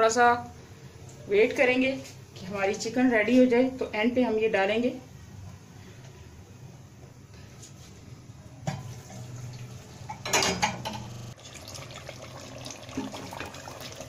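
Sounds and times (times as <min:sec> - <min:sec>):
low steady background noise: 0:00.0 - 0:14.0
dishes clattering: 0:10.0 - 0:11.2.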